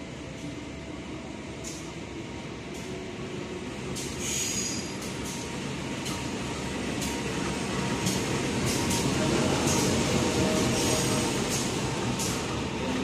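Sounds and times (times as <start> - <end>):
high wheel squeal: 4.2 - 5.0.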